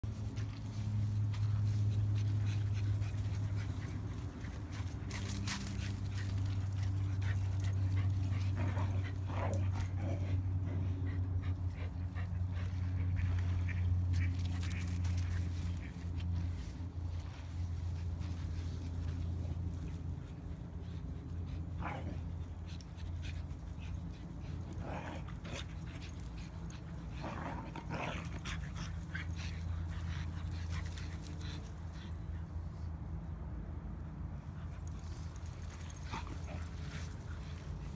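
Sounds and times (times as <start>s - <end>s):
dog panting: 0.3s - 13.2s.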